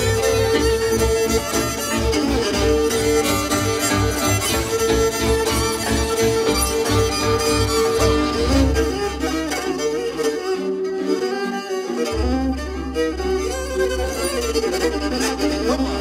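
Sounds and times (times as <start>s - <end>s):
folk string band music: 0.0s - 16.0s
solo violin: 0.0s - 16.0s.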